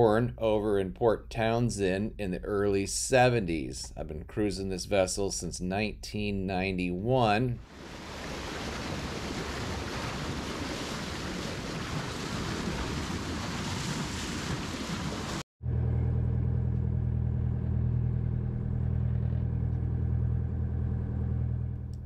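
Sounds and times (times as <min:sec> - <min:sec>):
bow wave splashing: 0:07.2 - 0:15.4
boat engine droning: 0:07.6 - 0:22.0.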